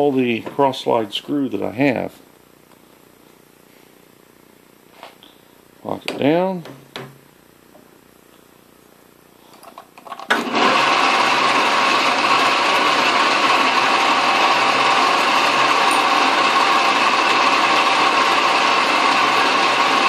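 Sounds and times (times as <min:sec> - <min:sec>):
metal lathe whine: 0:10.4 - 0:20.0.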